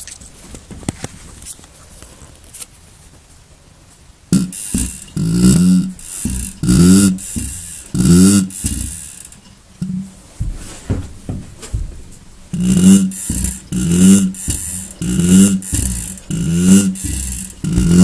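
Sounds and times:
air compressor wheezing hiss: 0:04.4 - 0:09.4, 0:12.5 - 0:18.0.

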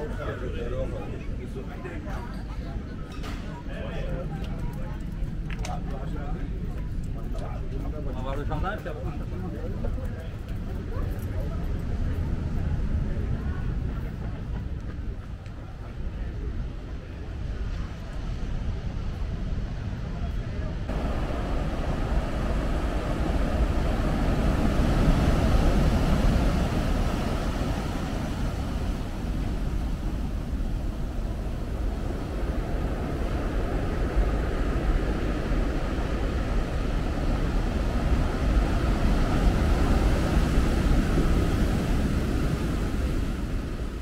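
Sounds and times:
surf breaking on rocky shore: 0:20.7 - 0:44.0.

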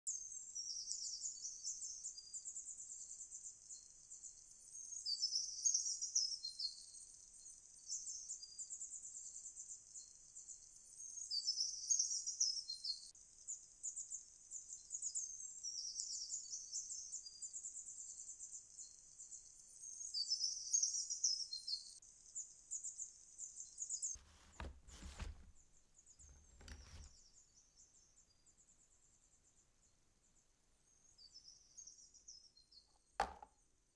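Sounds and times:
dull thumps: 0:24.2 - 0:25.6, 0:26.2 - 0:27.1, 0:33.2 - 0:33.5.

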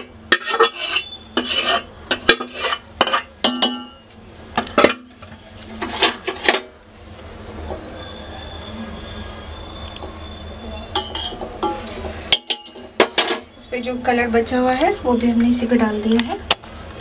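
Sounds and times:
metal spoon scraping pots: 0:00.0 - 0:04.0, 0:04.6 - 0:06.7, 0:10.9 - 0:13.6.

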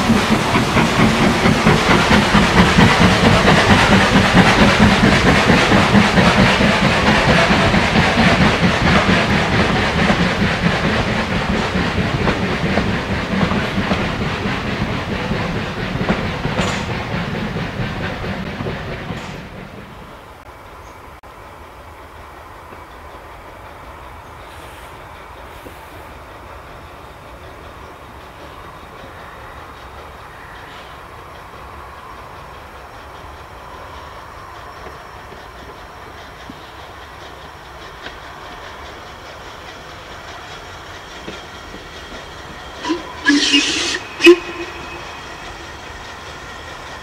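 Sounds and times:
steam train rumbling: 0:00.0 - 0:47.0
steam whistle blasts: 0:42.8 - 0:46.4.

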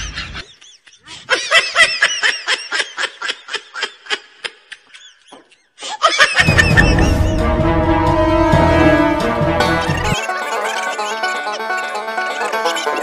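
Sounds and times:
music: 0:06.4 - 0:13.0
high-pitched snickering laughter: 0:10.2 - 0:13.0.

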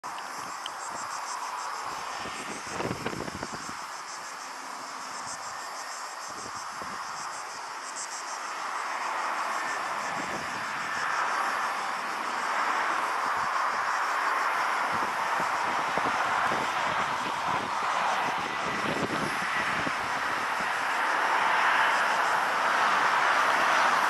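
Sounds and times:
insects chirping: 0:00.0 - 0:24.0.

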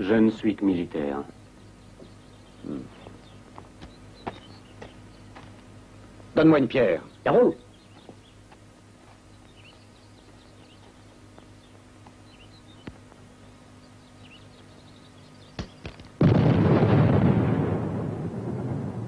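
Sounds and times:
faint outdoor ambience: 0:00.0 - 0:19.0
loud explosion with rumble: 0:16.2 - 0:19.0.

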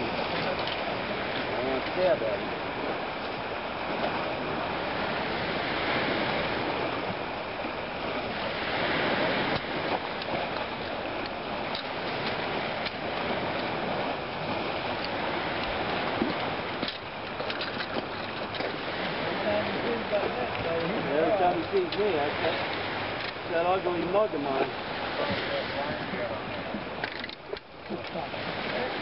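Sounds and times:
lake water washing: 0:00.0 - 0:29.0.

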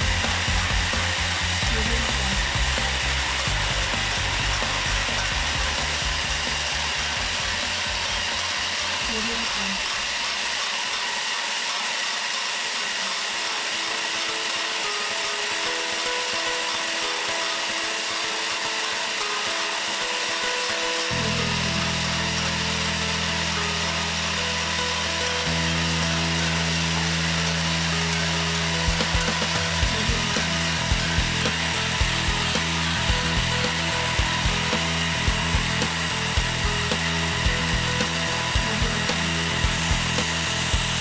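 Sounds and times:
deep steady hum: 0:00.0 - 0:08.2, 0:21.1 - 0:41.0
sieving machine running: 0:00.0 - 0:41.0.

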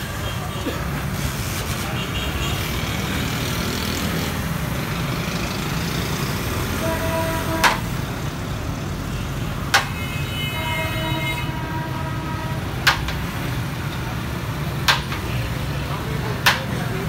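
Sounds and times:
street traffic rumbling: 0:00.0 - 0:17.0
vehicle horn: 0:06.8 - 0:07.9, 0:09.9 - 0:12.8
sharp knocks: 0:07.6 - 0:07.8.

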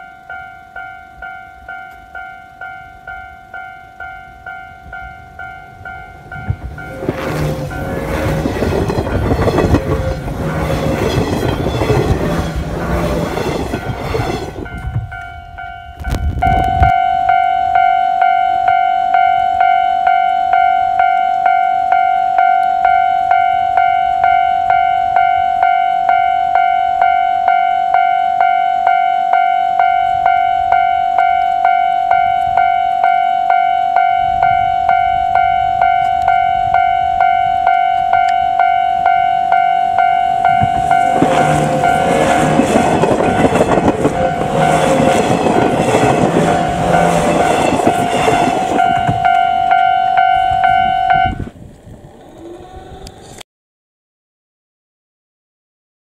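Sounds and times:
train wheel and running noise: 0:00.0 - 0:17.0, 0:34.2 - 0:53.4
level crossing warning bell: 0:00.0 - 0:51.5
approaching train rumble: 0:01.2 - 0:17.8, 0:29.3 - 0:53.4.

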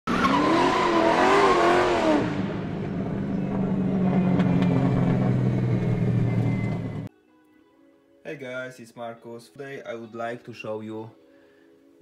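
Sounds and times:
car engine revving: 0:00.1 - 0:07.1.

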